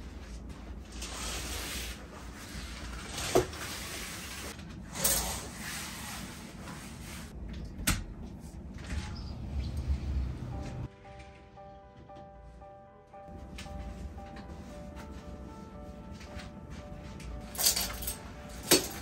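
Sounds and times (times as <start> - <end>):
curtain fabric swishing: 0.1 - 7.4.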